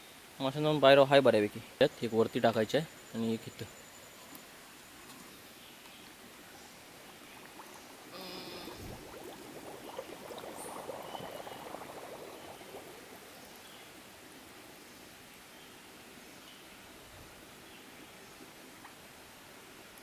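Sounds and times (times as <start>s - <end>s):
water gurgling and bubbling: 6.6s - 13.8s.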